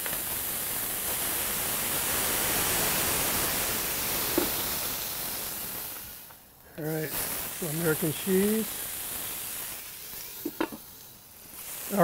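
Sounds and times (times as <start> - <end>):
wine sizzling on griddle: 0.0 - 12.0
metal dome tap: 10.4 - 10.8.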